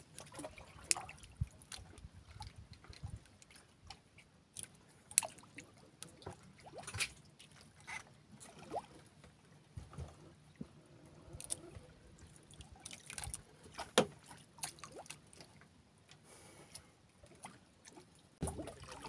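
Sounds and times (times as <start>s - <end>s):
water sloshing against boat hull: 0.0s - 16.2s, 16.8s - 19.0s.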